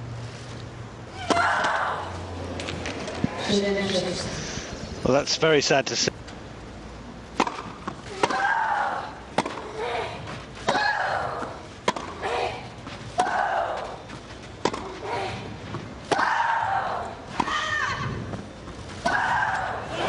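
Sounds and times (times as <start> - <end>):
racket hitting tennis ball: 7.3 - 13.8, 14.6 - 16.5.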